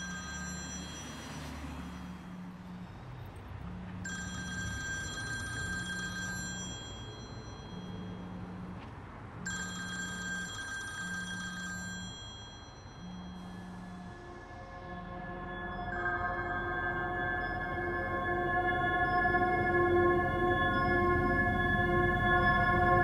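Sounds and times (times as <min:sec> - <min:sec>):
telephone ringing: 0:04.0 - 0:07.9, 0:09.5 - 0:13.4
low pulsing tone: 0:13.0 - 0:23.0.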